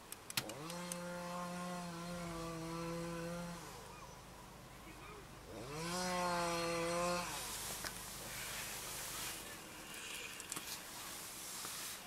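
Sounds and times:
chainsaw cutting ice: 0.4 - 3.9, 5.5 - 11.3.

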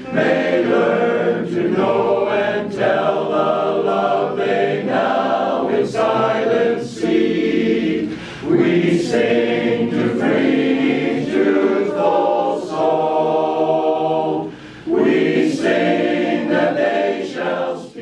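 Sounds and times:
men's chorus singing a cappella: 0.0 - 18.0.

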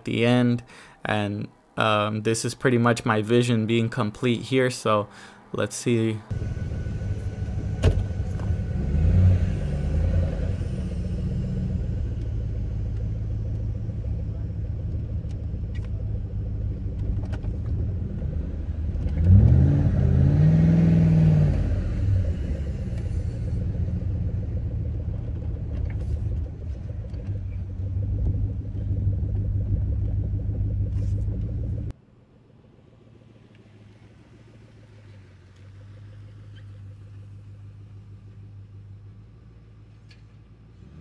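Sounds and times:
car engine running and revving: 6.3 - 38.4.

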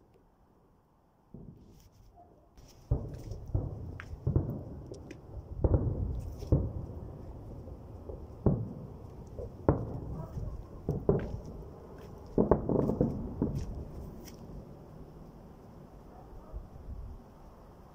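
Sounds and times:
distant firework booms: 2.6 - 14.2.

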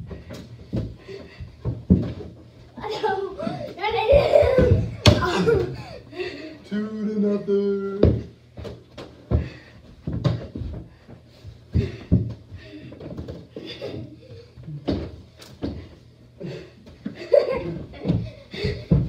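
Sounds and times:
running feet: 0.0 - 6.4, 7.7 - 19.0
ball striking walls and doors: 4.2 - 5.8, 8.0 - 10.9.

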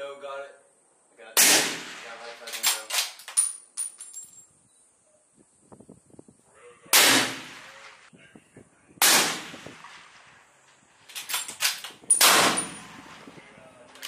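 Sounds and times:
loud gunshots with echo: 1.4 - 2.4, 6.9 - 8.0, 9.0 - 10.3, 12.2 - 13.3.

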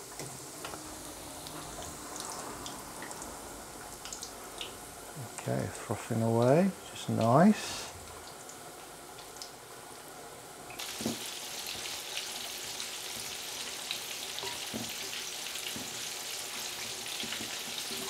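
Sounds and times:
meat deep-frying in oil: 0.0 - 18.0.

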